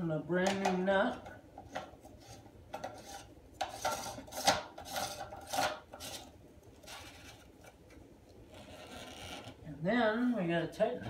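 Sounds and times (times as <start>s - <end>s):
parts scraping on porcelain: 1.7s - 7.5s.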